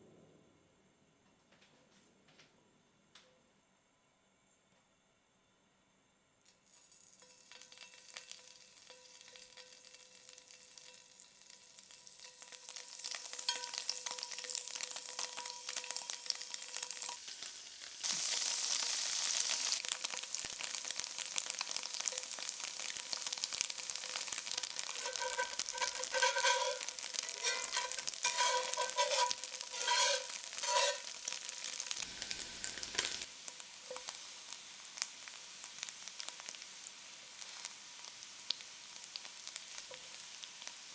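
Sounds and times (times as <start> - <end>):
tofu sizzling in hot oil: 6.6 - 40.9
metal tongs tapping a pan: 7.2 - 17.2, 24.0 - 31.7.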